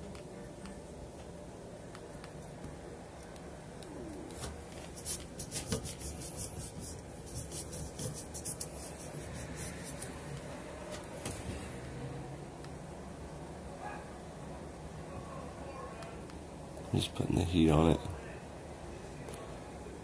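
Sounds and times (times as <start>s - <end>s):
fingers rubbing wires: 4.2s - 10.2s.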